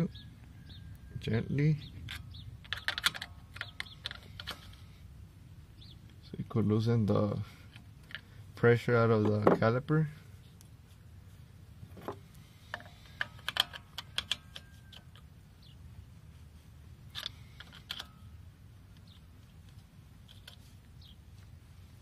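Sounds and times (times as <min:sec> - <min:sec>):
metal clicks and taps: 0:02.0 - 0:04.8, 0:12.0 - 0:15.3, 0:17.1 - 0:18.2.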